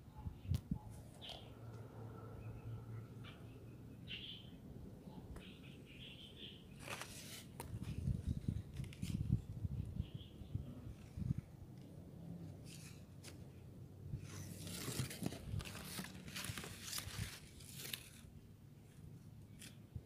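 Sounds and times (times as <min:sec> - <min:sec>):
leaves and twigs rustling: 0:06.8 - 0:09.4, 0:14.2 - 0:19.8.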